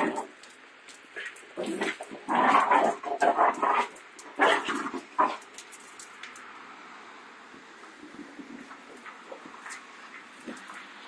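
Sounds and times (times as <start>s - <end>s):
dogs barking and yapping: 0.0s - 6.2s.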